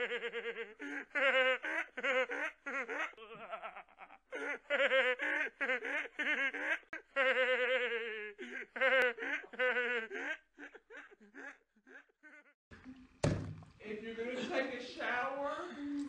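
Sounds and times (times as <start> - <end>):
boy laughing hysterically: 0.0 - 12.6.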